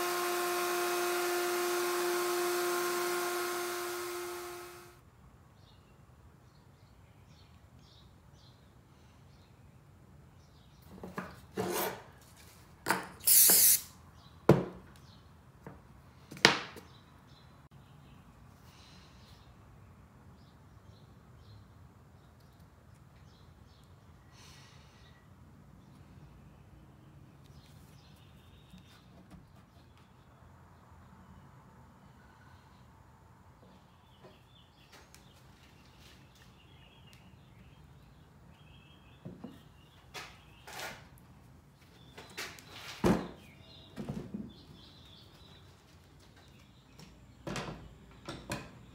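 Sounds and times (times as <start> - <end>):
short loud hiss: 13.2 - 14.0.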